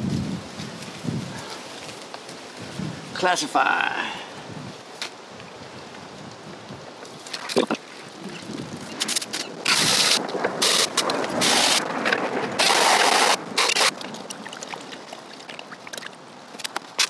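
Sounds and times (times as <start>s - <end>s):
hose spraying water on gravel: 9.1s - 11.9s, 12.5s - 15.3s.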